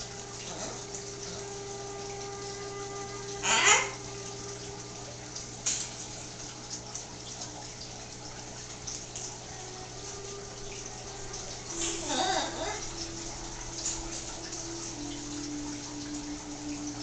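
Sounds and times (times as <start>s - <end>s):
background hum and hiss: 0.0s - 17.0s
macaw squawking: 3.4s - 4.0s, 11.8s - 12.9s.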